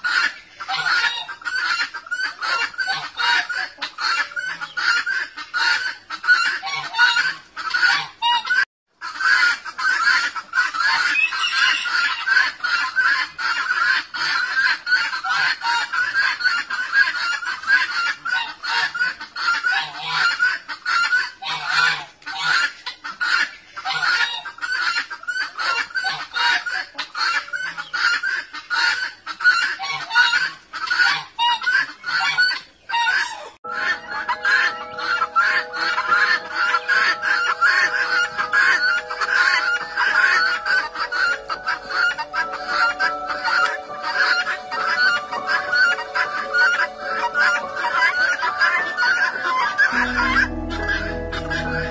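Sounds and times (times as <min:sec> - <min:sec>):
guineafowl cackling: 0:00.0 - 0:51.9.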